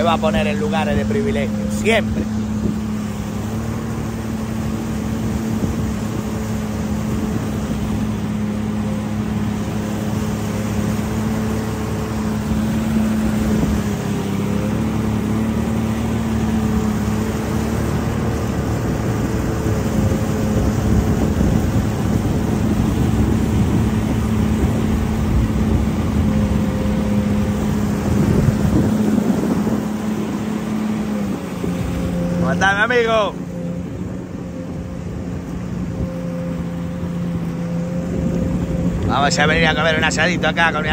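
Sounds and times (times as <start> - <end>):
jet ski engine droning: 0.0 - 40.9
water wash: 0.0 - 40.9
wind noise: 4.9 - 8.5, 12.3 - 14.4, 17.8 - 32.3.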